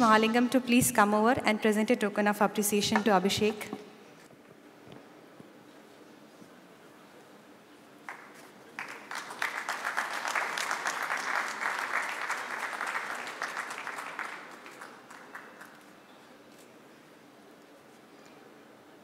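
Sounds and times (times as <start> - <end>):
audience applauding: 8.0 - 16.1.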